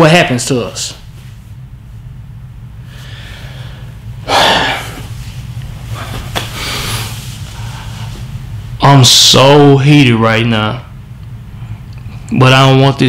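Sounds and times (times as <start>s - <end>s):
steady low hum: 0.0s - 13.0s
man breathing sharply: 2.8s - 5.3s, 5.9s - 8.3s.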